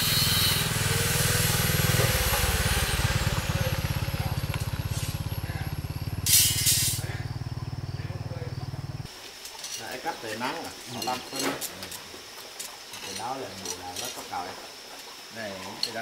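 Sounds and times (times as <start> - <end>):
engine chugging: 0.0 - 9.1
short hiss: 6.2 - 7.1.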